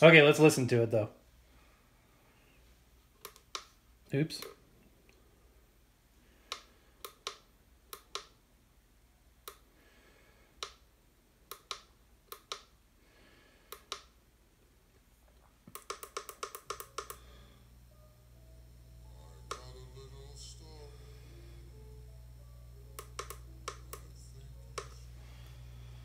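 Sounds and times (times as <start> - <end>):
faint record music: 0.0 - 26.0
vinyl clicks and pops: 15.6 - 17.2, 19.4 - 19.9, 22.9 - 25.6
low hum: 16.6 - 26.0.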